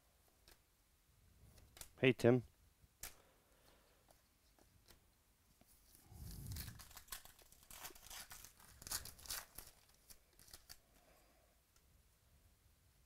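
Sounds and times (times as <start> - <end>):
foil wrapper tearing and crinkling: 6.3 - 10.8.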